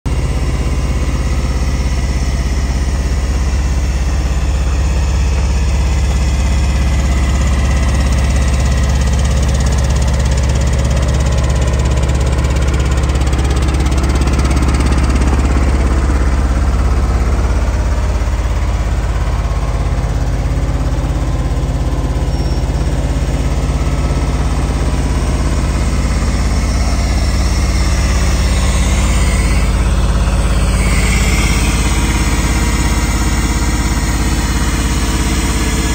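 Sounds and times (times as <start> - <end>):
air compressor engine idling: 0.1 - 35.9.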